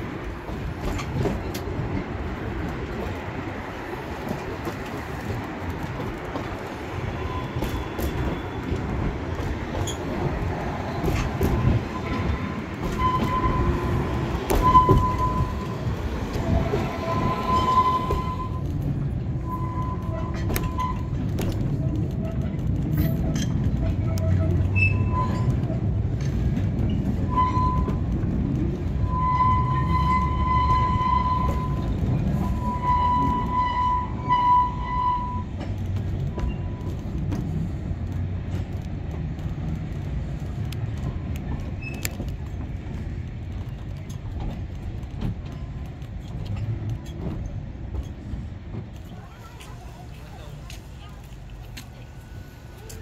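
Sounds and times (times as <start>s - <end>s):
train wheels rumbling and clicking: 0.0s - 53.0s
high-pitched wheel squeal: 11.8s - 18.7s, 23.1s - 25.7s, 27.2s - 28.1s, 29.0s - 35.5s.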